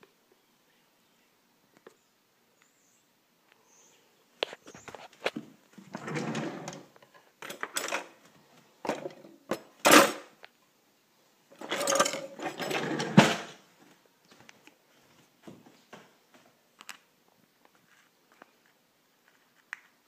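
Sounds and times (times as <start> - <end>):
rattling and rustling handling noise: 4.5 - 10.3, 11.5 - 13.6.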